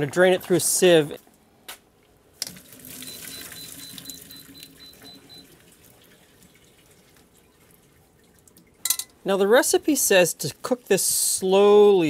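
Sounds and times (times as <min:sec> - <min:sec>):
water splashing into a metal sink: 0:02.4 - 0:09.1.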